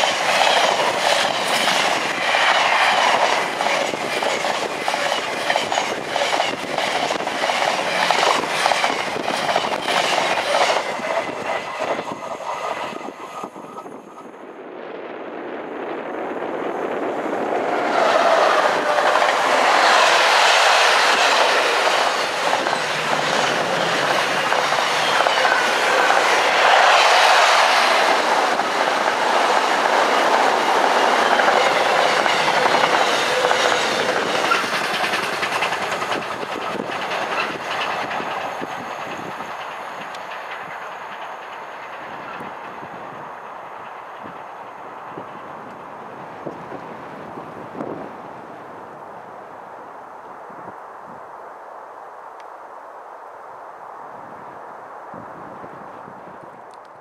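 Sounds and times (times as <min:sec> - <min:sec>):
freight train wheels clattering: 0:00.0 - 0:13.8, 0:17.6 - 0:45.9.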